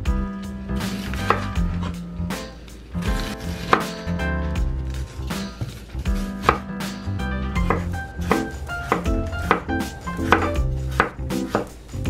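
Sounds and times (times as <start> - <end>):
background music: 0.0 - 12.0
knife slicing onion on board: 0.8 - 2.0, 3.0 - 4.1, 5.3 - 6.7, 7.5 - 11.8.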